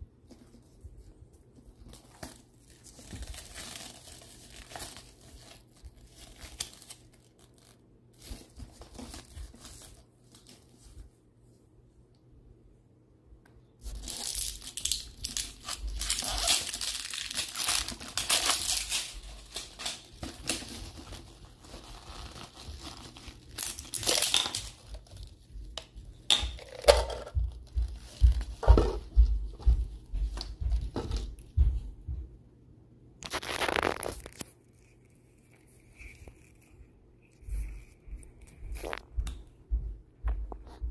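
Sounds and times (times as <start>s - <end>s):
plastic scraping against gloves: 13.8s - 25.8s, 33.2s - 39.1s.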